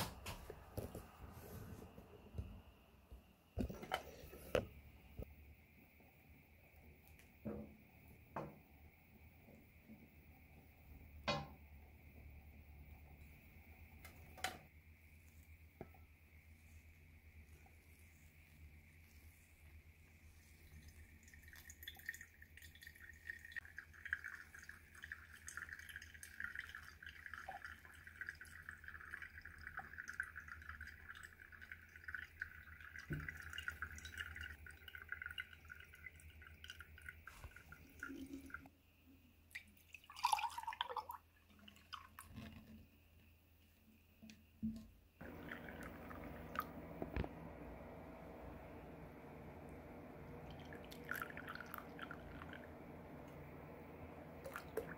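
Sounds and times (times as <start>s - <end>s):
coffee grounds bubbling: 0.1s - 2.6s, 15.1s - 38.7s, 39.6s - 42.7s, 45.2s - 54.9s
coffee poured into ceramic cup: 20.4s - 38.7s, 39.6s - 42.5s, 45.2s - 47.7s, 50.2s - 53.6s, 54.4s - 54.9s
coffee dripping into glass server: 50.5s - 52.7s.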